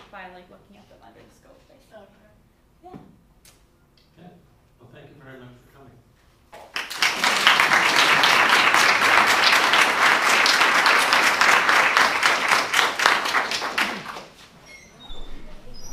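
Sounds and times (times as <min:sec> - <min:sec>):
audience applauding: 0:06.6 - 0:14.4.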